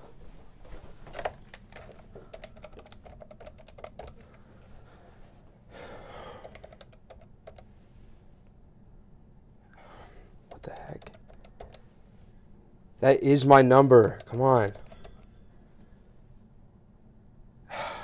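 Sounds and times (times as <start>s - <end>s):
phone keypad clicks: 14.2s - 15.3s.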